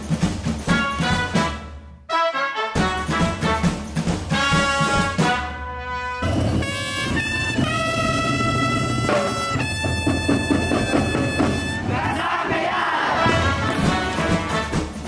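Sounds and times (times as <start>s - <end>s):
drums: 0.0s - 15.0s
trumpets holding long notes: 0.8s - 12.1s.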